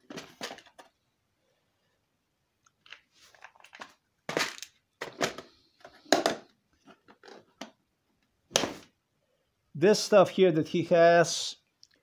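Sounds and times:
plastic tackle boxes clattering: 0.0s - 1.0s, 3.3s - 7.8s.

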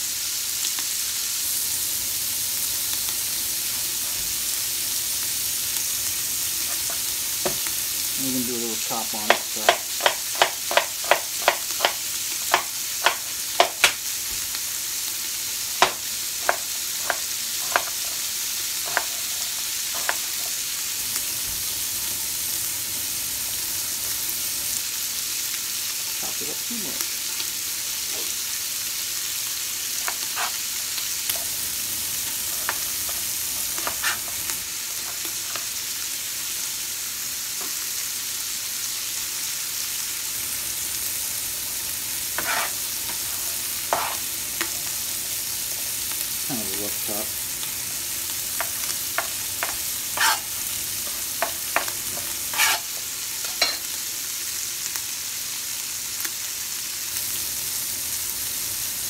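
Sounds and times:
sausage meat sizzling in a pot: 0.0s - 59.0s
knife chopping on plastic board: 9.3s - 14.0s, 15.8s - 18.0s, 42.4s - 42.7s, 43.9s - 44.2s, 48.6s - 50.4s, 51.4s - 52.8s.

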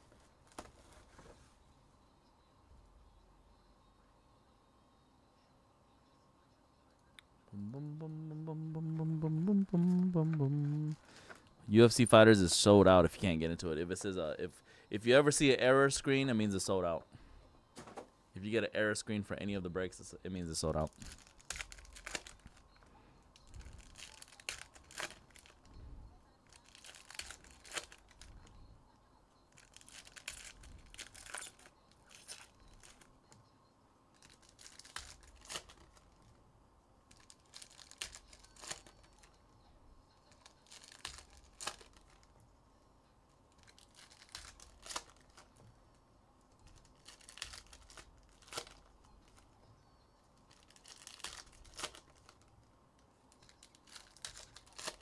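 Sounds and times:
foil wrappers tearing and crinkling: 20.9s - 22.6s, 23.4s - 25.6s, 26.4s - 28.3s, 29.6s - 33.0s, 34.2s - 36.1s, 37.1s - 39.3s, 40.3s - 42.3s, 43.5s - 45.5s, 46.7s - 49.4s, 50.5s - 52.5s, 53.3s - 55.0s.

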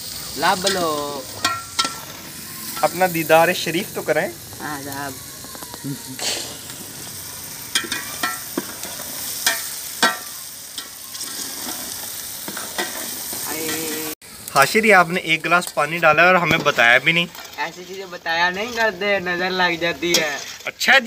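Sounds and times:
vegetables sizzling in a pot: 0.0s - 21.0s
steel ladle clinking against pot: 1.4s - 2.0s.

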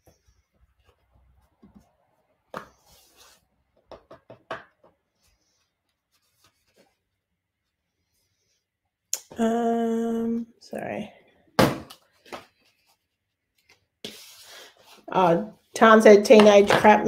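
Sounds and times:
person's voice: 9.2s - 11.2s, 15.1s - 17.0s.

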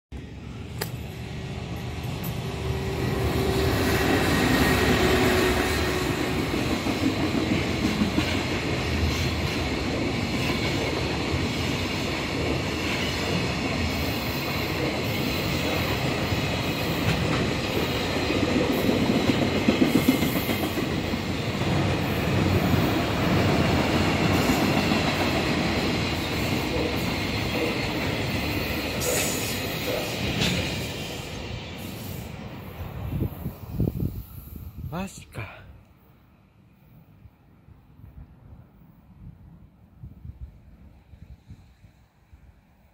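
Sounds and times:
freight train passing on rails: 0.1s - 42.9s
sharp knocks of train wheels: 2.0s - 31.2s.

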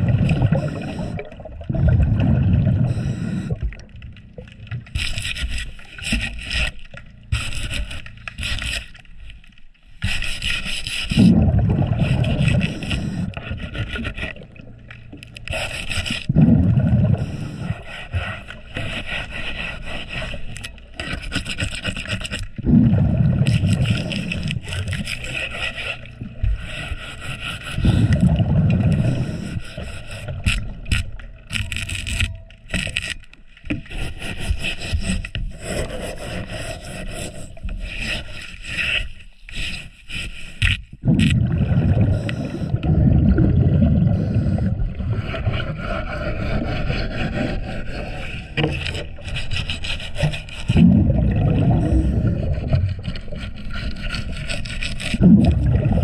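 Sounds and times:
scuba regulator bubbles: 0.0s - 6.4s, 11.0s - 27.1s, 27.7s - 32.9s, 41.0s - 56.0s
scraping growth off propeller underwater: 0.0s - 56.0s.

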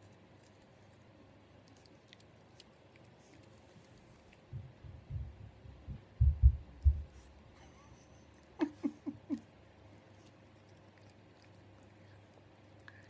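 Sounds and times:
dull low thumps: 4.5s - 7.3s.

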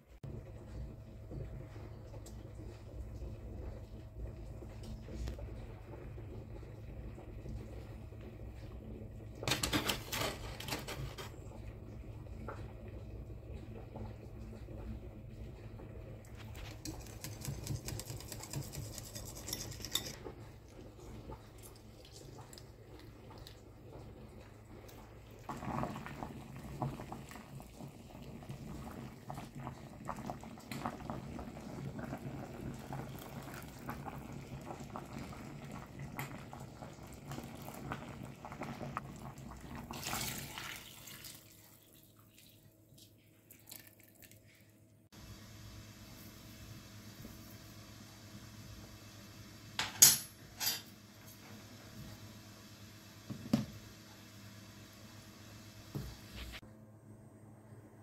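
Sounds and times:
metal whisk clinking in bowl: 16.8s - 20.2s
utensils clinking: 16.8s - 20.2s, 49.8s - 50.9s
liquid pouring and splashing: 20.9s - 28.3s, 37.3s - 44.6s.

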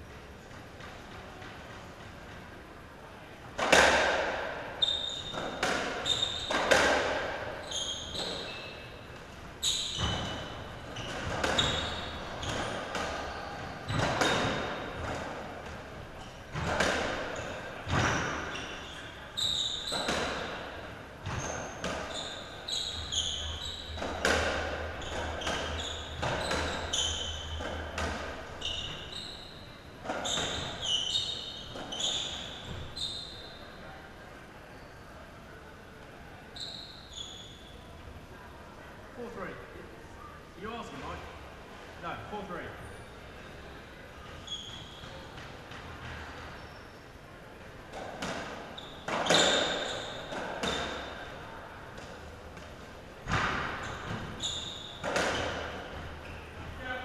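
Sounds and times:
ball struck by racquets: 3.6s - 4.6s, 5.3s - 7.4s
shoes squeaking: 3.6s - 34.0s, 36.5s - 37.9s, 44.2s - 47.1s, 47.9s - 57.0s.

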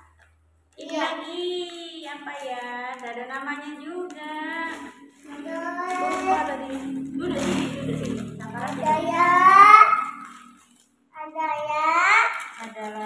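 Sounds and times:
child singing: 4.0s - 7.7s, 8.7s - 10.2s.

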